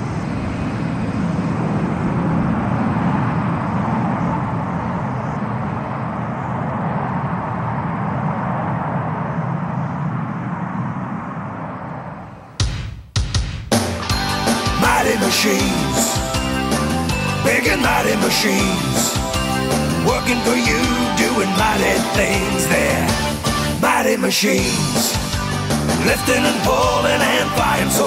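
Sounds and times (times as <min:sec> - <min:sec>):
jet engines rumbling: 0:00.0 - 0:28.0
loud burst of music: 0:12.6 - 0:28.0.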